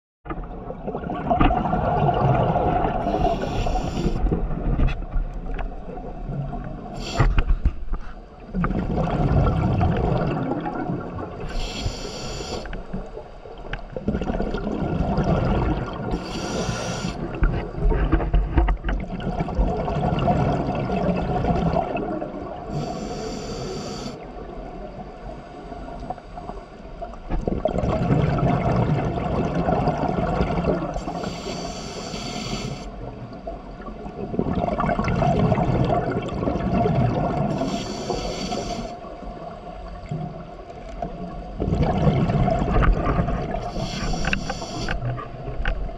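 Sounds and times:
bubbling exhaled air: 0.9s - 4.7s, 8.6s - 12.7s, 14.0s - 17.4s, 41.6s - 45.2s
regulator inhale hiss: 3.0s - 4.3s, 7.0s - 7.6s, 11.4s - 12.9s, 16.1s - 17.3s, 22.7s - 24.2s, 31.0s - 33.0s, 37.5s - 39.1s, 43.6s - 45.2s.

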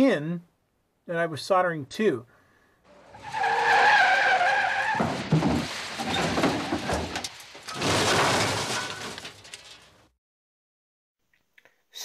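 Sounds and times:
tyre screech: 2.9s - 9.8s
rough skidding and clatter: 2.9s - 10.1s.

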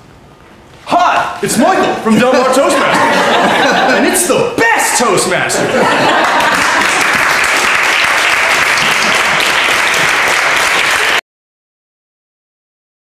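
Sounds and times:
audience applauding: 5.6s - 11.2s.

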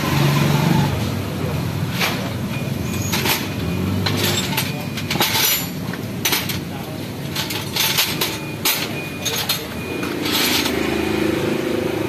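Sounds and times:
metal tools clinking on concrete: 1.9s - 11.0s.

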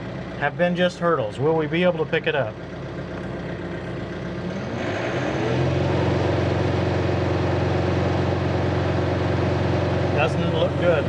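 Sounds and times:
tractor diesel engine revving: 0.0s - 11.0s.

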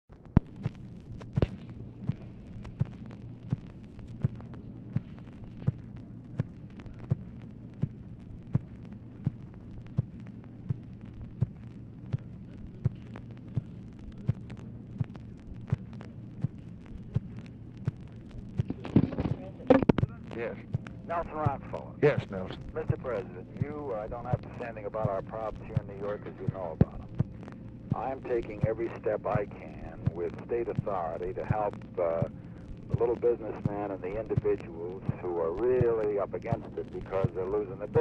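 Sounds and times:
telephone line hum and hiss: 0.1s - 38.0s.

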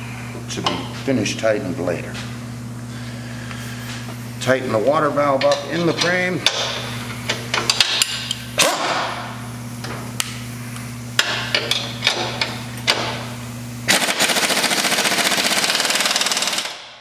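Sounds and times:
steady low hum: 0.0s - 17.0s
pneumatic impact wrench hammering: 6.4s - 10.0s, 11.2s - 17.0s.

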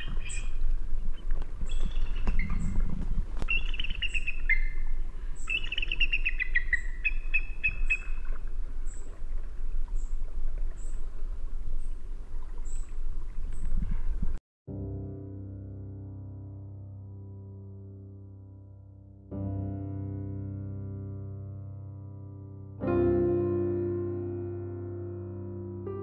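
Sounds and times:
bird whistled notes: 0.0s - 0.6s, 1.6s - 2.8s, 3.4s - 9.2s
high thin bird chirps: 0.0s - 2.8s, 3.4s - 9.2s, 12.6s - 13.8s
low rumble: 0.0s - 5.6s.

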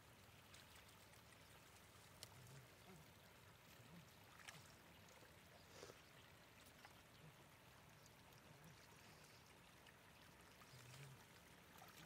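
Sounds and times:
splashing in shallow water: 3.6s - 5.8s, 10.3s - 12.0s.

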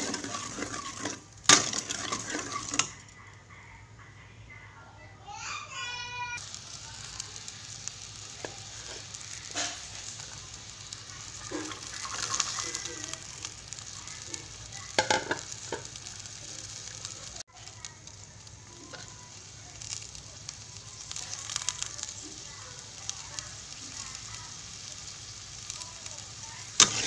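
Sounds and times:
metal spatula scraping a wok: 0.0s - 3.0s, 8.7s - 10.2s, 26.8s - 27.0s
broth sizzling in a wok: 0.0s - 3.4s, 5.3s - 27.0s.

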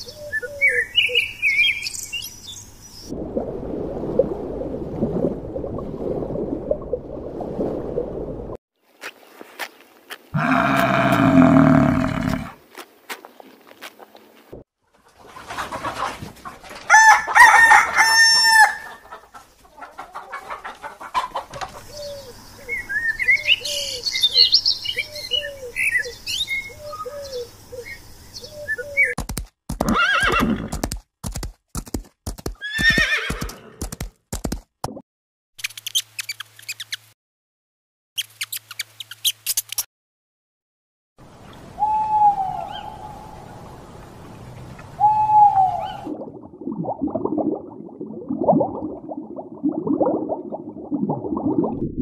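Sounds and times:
hens clucking: 15.0s - 17.4s, 18.8s - 21.9s
rooster crowing: 16.9s - 19.0s
horse hooves cantering: 29.2s - 34.7s
owl hooting: 41.8s - 43.2s, 45.0s - 46.0s.

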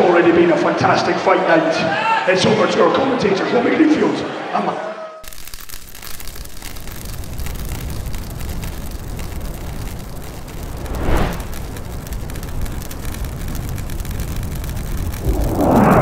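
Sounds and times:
steady low rumble: 9.3s - 16.0s
whoosh: 10.5s - 11.7s, 15.1s - 16.0s.

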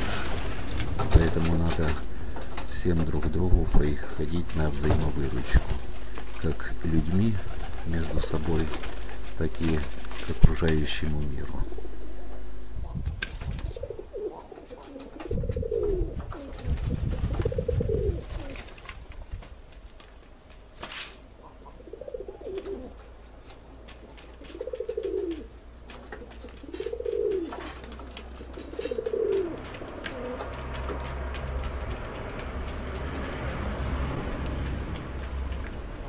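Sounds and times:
pigeons cooing: 11.2s - 13.0s, 13.6s - 18.8s, 21.4s - 23.1s, 24.4s - 33.5s.

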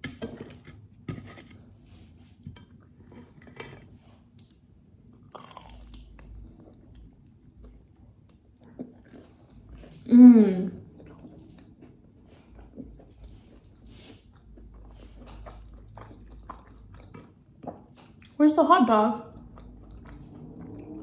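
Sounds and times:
person chewing: 2.4s - 18.4s, 19.3s - 21.0s
crunching fried batter: 5.1s - 10.0s.

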